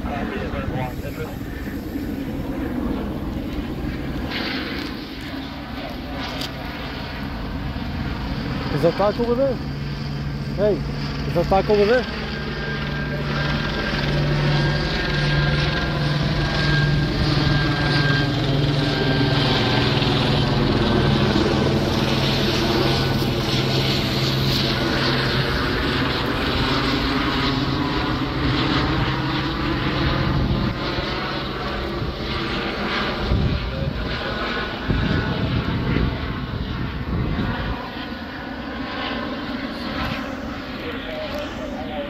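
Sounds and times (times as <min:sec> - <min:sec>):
helicopter passing overhead: 0:00.0 - 0:42.0.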